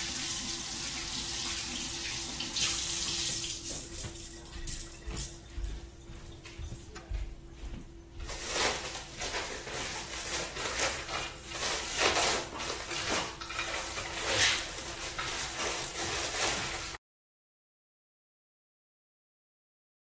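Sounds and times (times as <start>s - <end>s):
tap water running: 0.0s - 4.5s, 8.3s - 17.0s.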